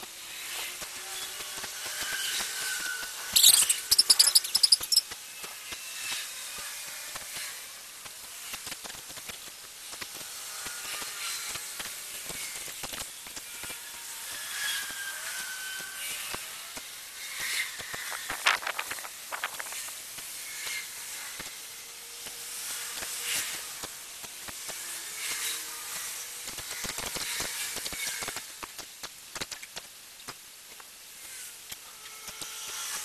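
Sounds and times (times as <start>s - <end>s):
tiny crackling pops: 27.8s - 31.0s.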